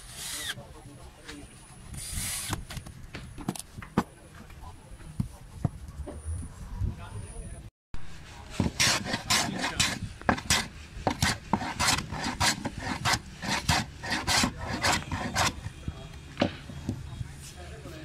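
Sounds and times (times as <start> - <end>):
hand plane rasping strokes: 8.6 - 15.6.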